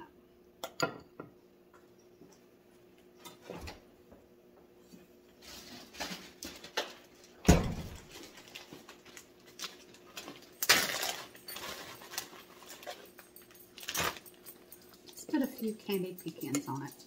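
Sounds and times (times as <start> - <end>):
refrigerator door shutting: 7.4 - 8.1.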